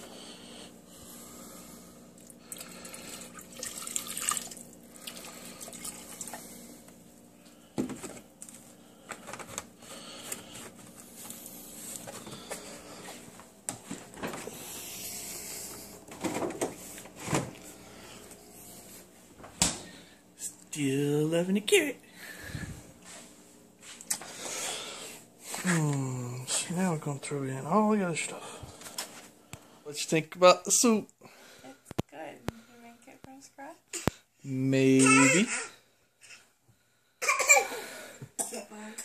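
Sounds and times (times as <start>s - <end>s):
milk pouring into saucepan: 2.2s - 6.5s.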